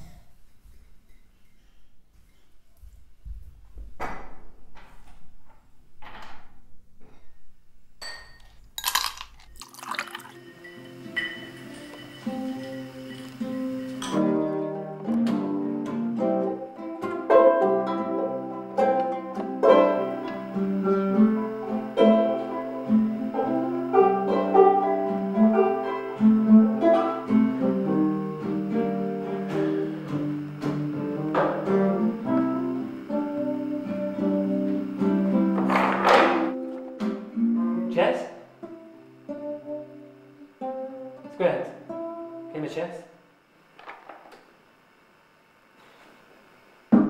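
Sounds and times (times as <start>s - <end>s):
plucked guitar notes: 10.4s - 42.5s.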